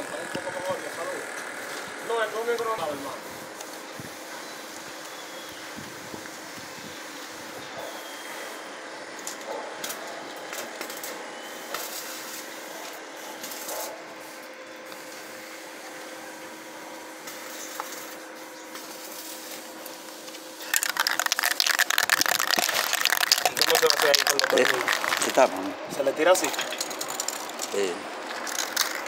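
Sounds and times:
loud rough crackling: 0:20.7 - 0:25.7.

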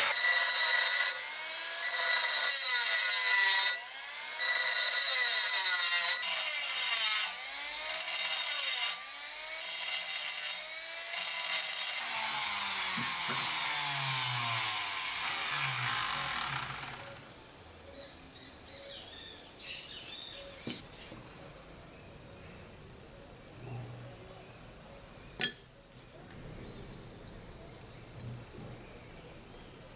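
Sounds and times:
metal-cutting tool whining: 0:00.0 - 0:17.3.

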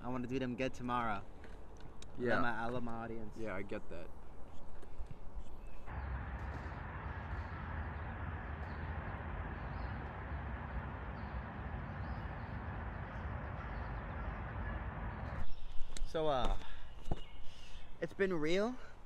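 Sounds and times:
low wind rumble: 0:03.2 - 0:16.0.

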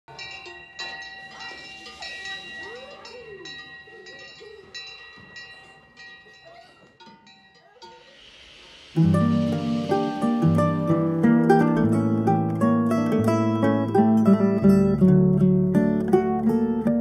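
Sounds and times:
metal bells clanking: 0:00.1 - 0:15.4
gliding calls: 0:07.7 - 0:11.8.

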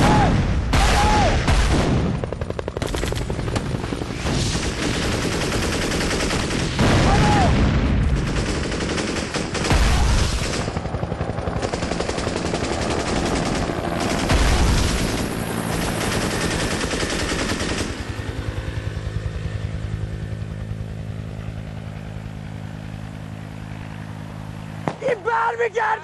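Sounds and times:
helicopter rotor chop: 0:00.0 - 0:26.0
heavy blasts: 0:06.4 - 0:08.7.

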